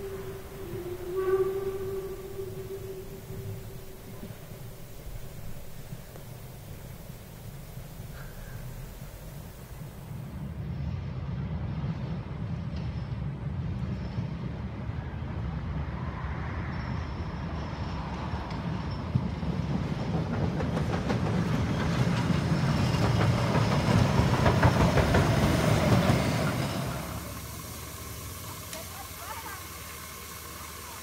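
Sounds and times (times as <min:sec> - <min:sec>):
train low rumble: 0:00.0 - 0:31.0
wheels clattering on rail joints: 0:17.8 - 0:31.0.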